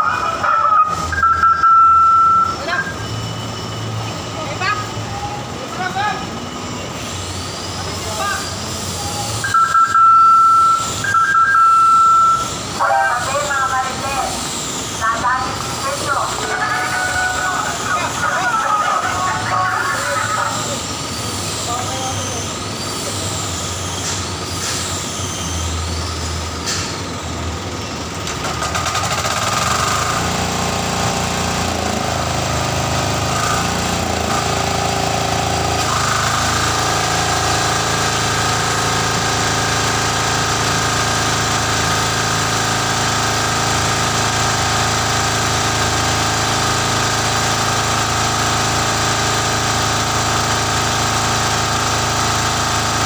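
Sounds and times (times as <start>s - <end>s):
engine driving water pump: 0.0s - 53.0s.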